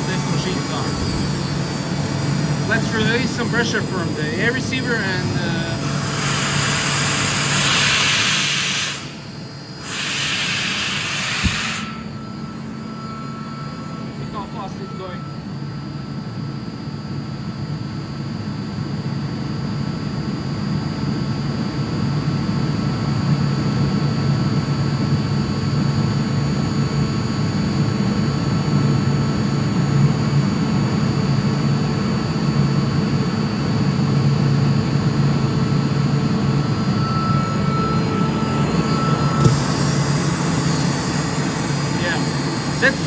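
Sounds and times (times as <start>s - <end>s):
air compressor humming: 0.0s - 17.0s, 33.3s - 43.0s.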